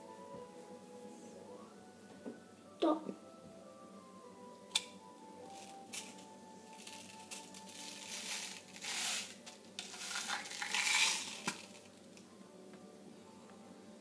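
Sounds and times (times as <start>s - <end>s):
plastic packaging crinkling: 5.6s - 11.9s.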